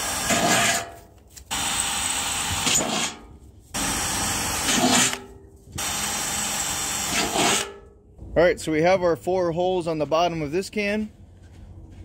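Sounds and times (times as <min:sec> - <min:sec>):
cordless drill boring metal: 0:00.0 - 0:00.8, 0:01.5 - 0:03.2, 0:03.8 - 0:05.2, 0:05.8 - 0:07.7.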